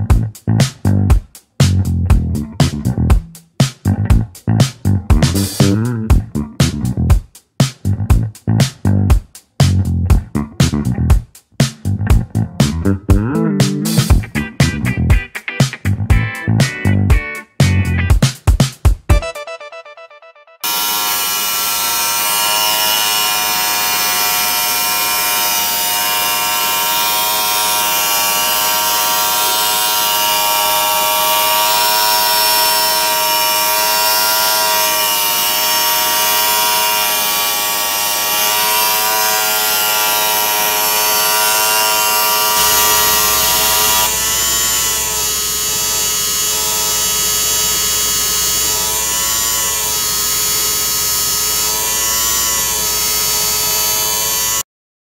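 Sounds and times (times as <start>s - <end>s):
pipe-cutting machine motor whine: 20.6s - 54.6s.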